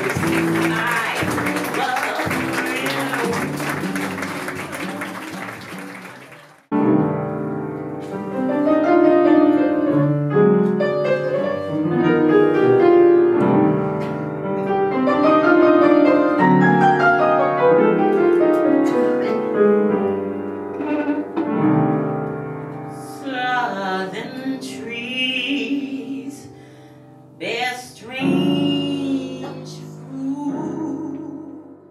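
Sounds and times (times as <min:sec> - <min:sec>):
jazz piano: 0:00.0 - 0:31.9
person singing: 0:23.0 - 0:26.6, 0:27.4 - 0:31.8.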